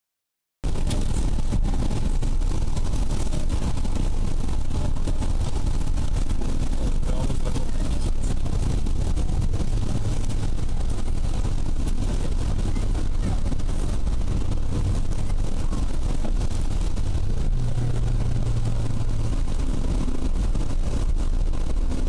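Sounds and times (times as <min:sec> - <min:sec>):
rain ticking on windscreen: 0:00.6 - 0:22.0
tyre and engine rumble: 0:00.6 - 0:22.0.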